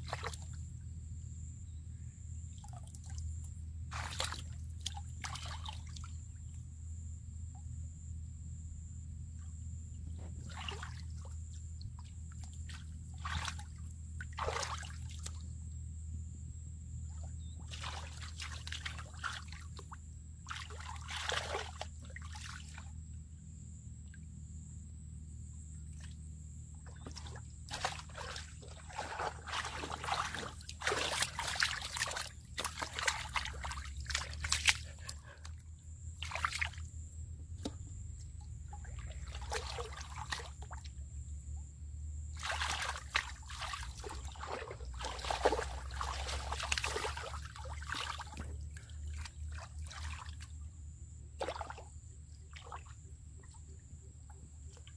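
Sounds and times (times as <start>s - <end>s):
hands splashing in water: 3.9s - 6.0s, 10.5s - 11.0s, 12.4s - 15.4s, 20.5s - 22.8s, 26.9s - 35.3s, 36.2s - 36.8s, 38.7s - 40.7s, 42.4s - 50.4s, 51.4s - 51.8s.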